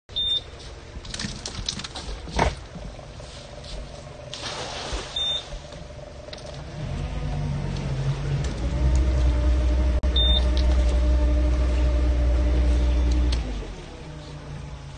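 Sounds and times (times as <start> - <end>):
net splashing onto water: 4.3 - 5.5.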